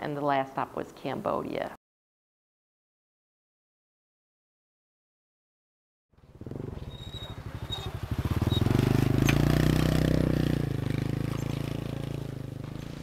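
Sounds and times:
small motorcycle engine running: 6.2 - 13.0.

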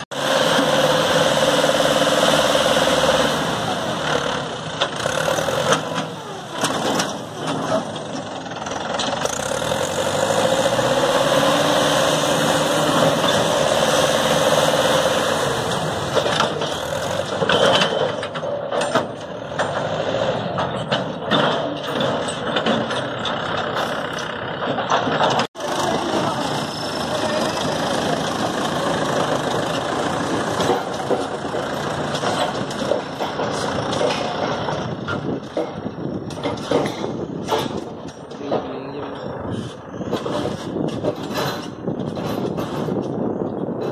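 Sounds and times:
tractor diesel engine under load: 0.0 - 43.9.

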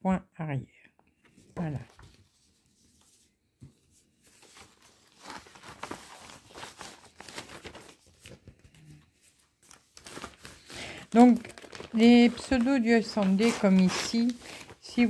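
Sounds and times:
paper rustling and crinkling: 1.2 - 15.0.

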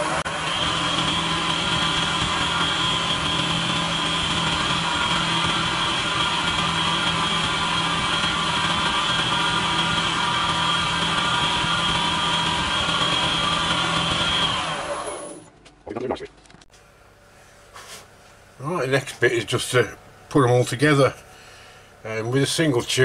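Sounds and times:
wood lathe whining: 0.0 - 15.5.

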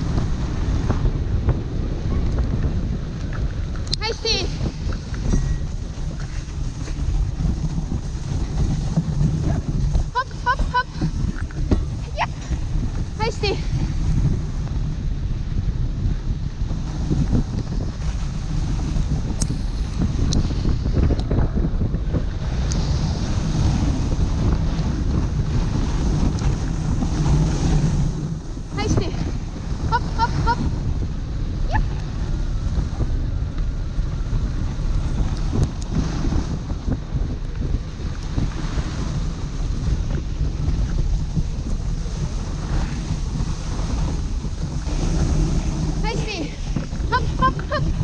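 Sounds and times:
wind rushing over microphone: 0.0 - 48.0
sled runners hissing over snow: 2.7 - 48.0.

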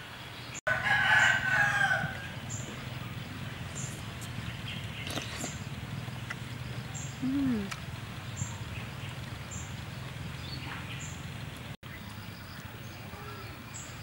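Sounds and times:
person humming: 7.2 - 7.8.

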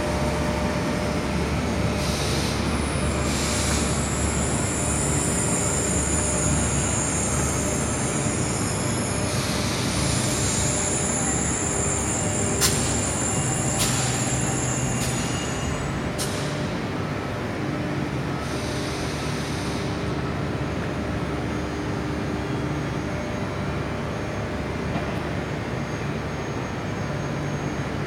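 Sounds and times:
low hum of stopped train: 0.0 - 28.0
train brake squeal: 2.0 - 16.8.

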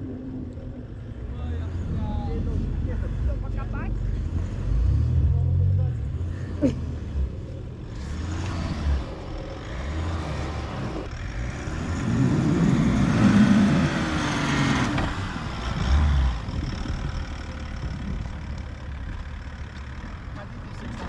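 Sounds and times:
tyres churning in snow: 0.0 - 21.0
truck engine revving under load: 1.5 - 21.0.

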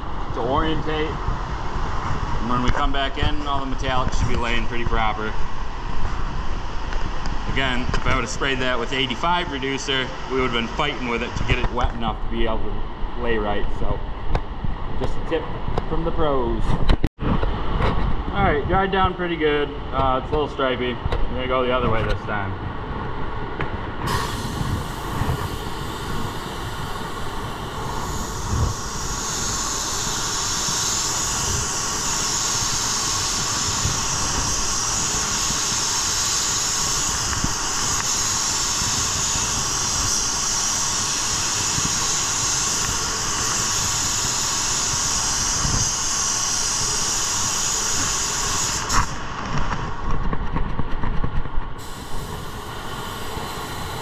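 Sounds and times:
air spray gun hissing: 24.0 - 49.8, 51.8 - 54.0
spray gun click: 24.1 - 49.2.

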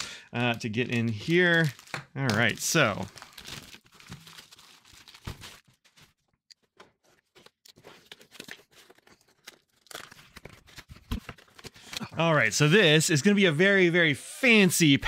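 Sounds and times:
plastic mailer crinkling: 0.4 - 6.2.

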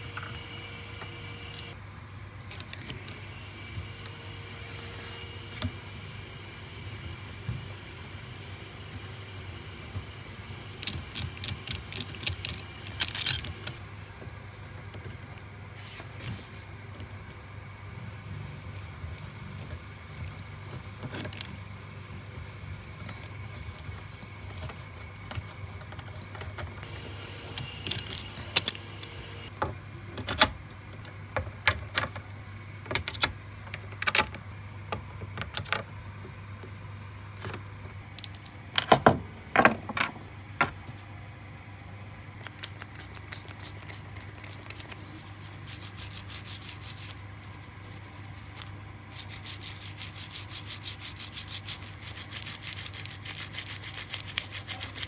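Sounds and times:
steady low hum: 0.0 - 55.0
toothbrush scrubbing metal: 42.7 - 55.0.

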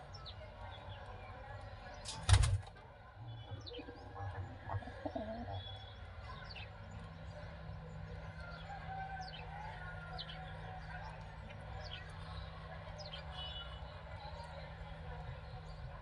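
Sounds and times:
pigeons cooing: 3.8 - 5.6.

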